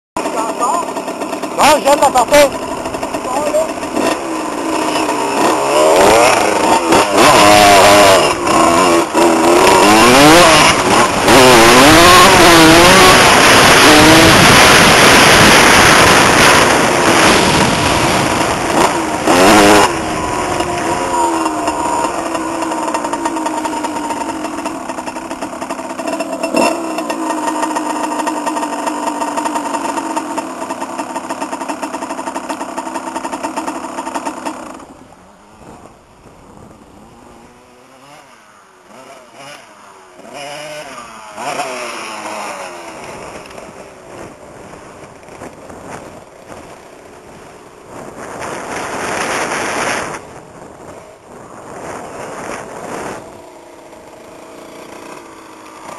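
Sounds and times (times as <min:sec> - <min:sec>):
dirt bike engine revving: 0:00.2 - 0:55.9
rushing noise: 0:00.9 - 0:28.7.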